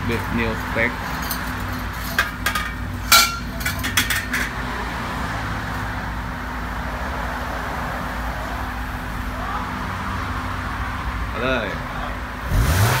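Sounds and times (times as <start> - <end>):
metal clinks and knocks: 0.6 - 4.6.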